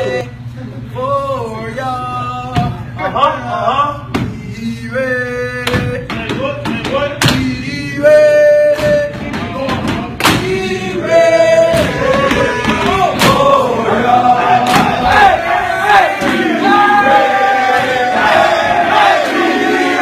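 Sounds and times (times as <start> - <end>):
crowd cheering and chanting: 5.6 - 20.0
sharp claps or thumps: 8.7 - 10.6.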